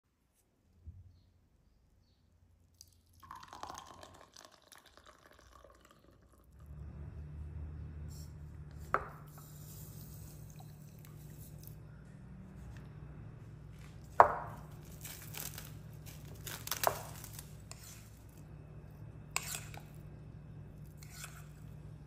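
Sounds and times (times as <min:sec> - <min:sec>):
water trickling onto seeds: 0:02.7 - 0:06.5
steady low hum: 0:06.5 - 0:22.0.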